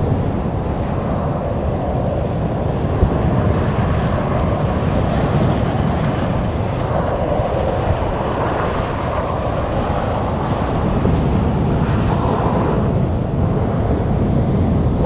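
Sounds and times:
jet engines hum: 0.0s - 15.0s
wind buffeting microphone: 0.0s - 15.0s.

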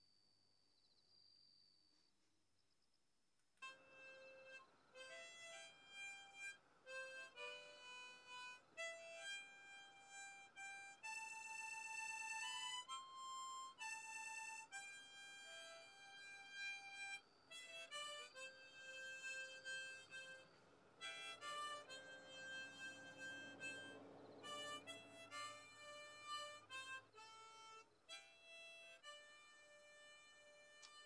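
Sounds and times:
harmonica slow melody: 3.6s - 31.0s.

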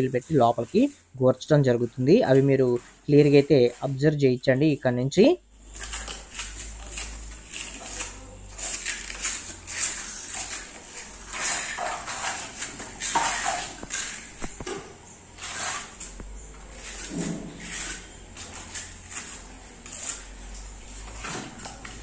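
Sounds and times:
trowel scraping mortar: 5.7s - 14.6s, 15.4s - 22.0s.

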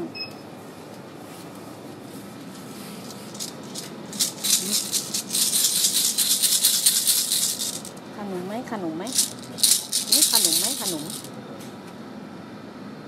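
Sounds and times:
plastic hand rattle shaken: 3.0s - 8.0s, 9.1s - 11.4s.

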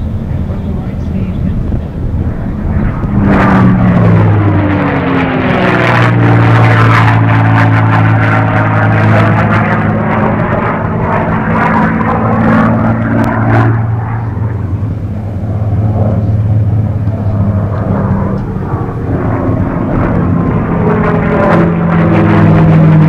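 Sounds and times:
propeller aircraft engine drone: 0.0s - 23.0s.

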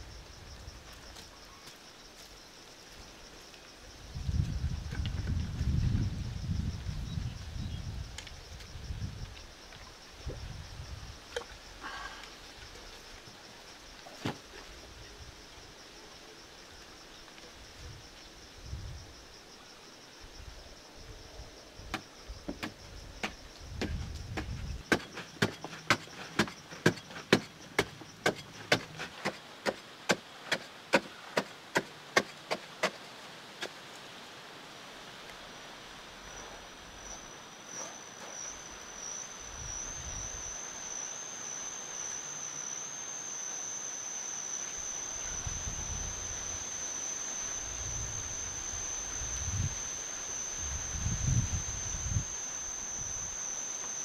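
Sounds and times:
high insect drone: 0.0s - 54.0s
digging tool chopping into soil: 23.8s - 33.0s.

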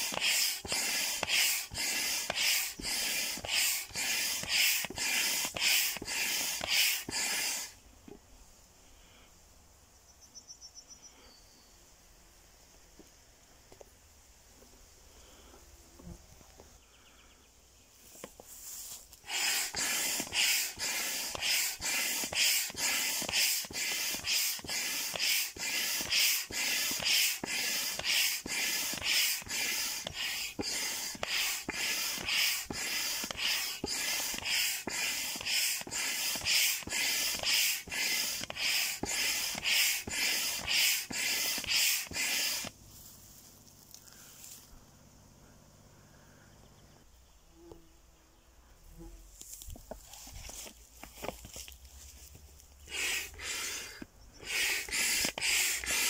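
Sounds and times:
hand pump hissing air: 0.0s - 7.8s, 19.1s - 42.8s, 52.8s - 56.0s.

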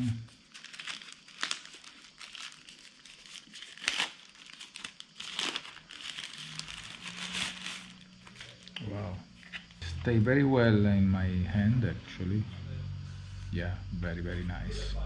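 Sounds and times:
plastic wrapping crinkling: 0.0s - 8.8s.

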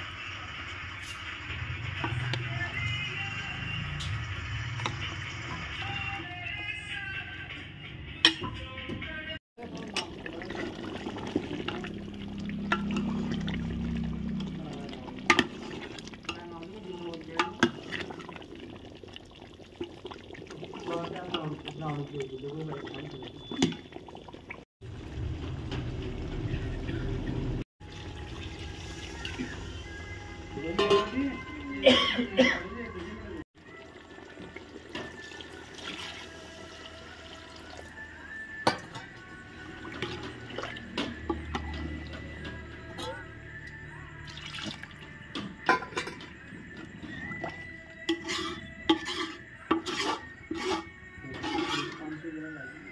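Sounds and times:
metal ladle stirring curry: 9.6s - 24.4s, 48.0s - 52.2s
liquid sloshing in pot: 9.6s - 25.1s, 33.6s - 43.3s, 44.2s - 52.2s
ladle clinking against pot: 45.6s - 46.3s.

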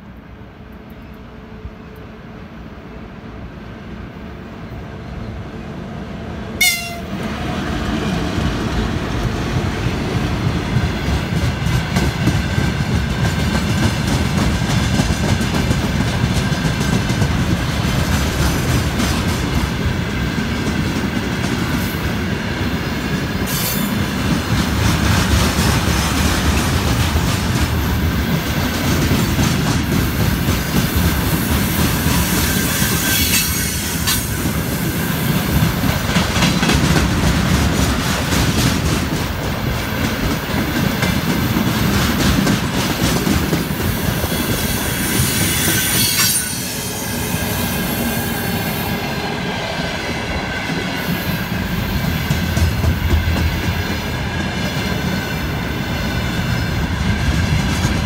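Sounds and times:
freight train rumbling past: 0.0s - 58.0s
locomotive horn blast: 6.6s - 7.2s.

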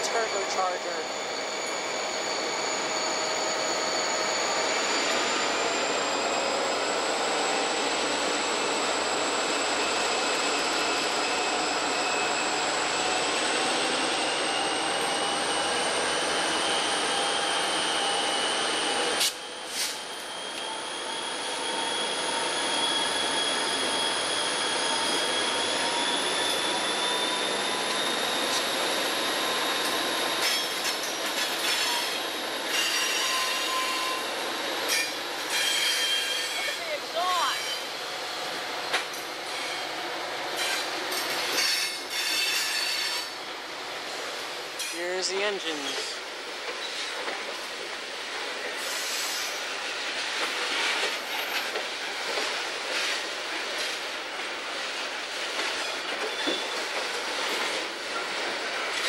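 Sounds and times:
diesel locomotive engines running hard: 0.0s - 59.0s.

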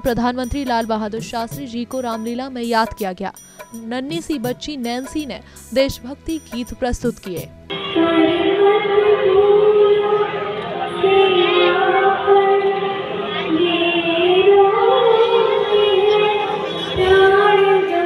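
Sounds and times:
girl singing into microphone: 7.7s - 18.0s.

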